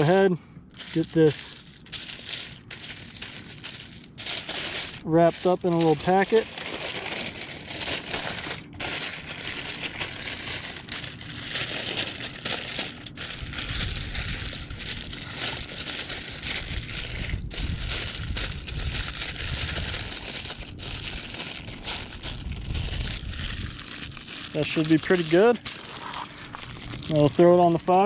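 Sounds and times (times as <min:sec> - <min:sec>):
aluminium foil crinkling: 0:00.0 - 0:28.0
low rumble: 0:13.2 - 0:24.4.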